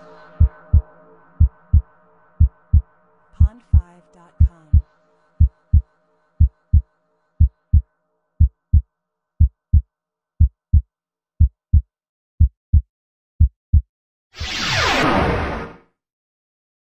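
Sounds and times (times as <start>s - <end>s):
heartbeat thumps: 0.4s - 0.8s, 1.4s - 1.8s, 2.4s - 4.8s, 5.4s - 5.8s, 6.4s - 6.8s, 7.4s - 7.8s, 8.4s - 8.8s, 9.4s - 9.8s, 10.4s - 10.8s, 11.4s - 12.8s, 13.4s - 13.8s
whoosh with falling sweep: 14.4s - 15.8s.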